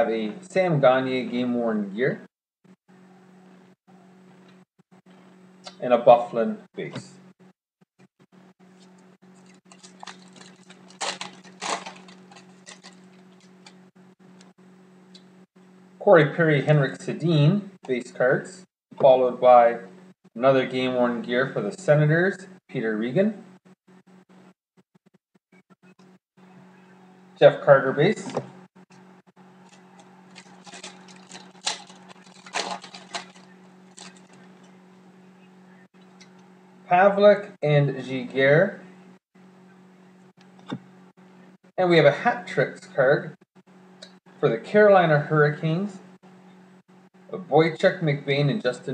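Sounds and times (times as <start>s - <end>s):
low electrical hum: 0.0s - 2.3s, 2.9s - 7.5s, 8.2s - 48.9s
foil wrapper tearing and crinkling: 9.4s - 13.8s, 29.6s - 34.8s.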